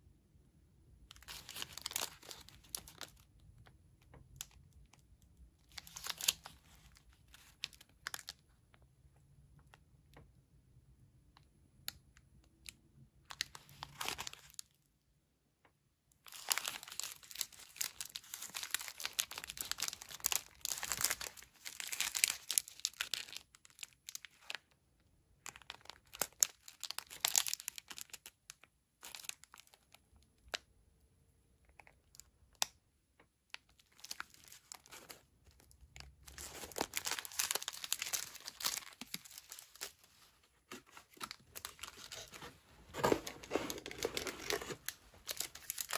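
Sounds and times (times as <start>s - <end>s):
plastic wrapper crinkling: 1.1s - 5.0s, 5.6s - 8.8s, 13.2s - 14.9s, 16.2s - 24.8s, 25.4s - 30.7s, 33.5s - 45.9s.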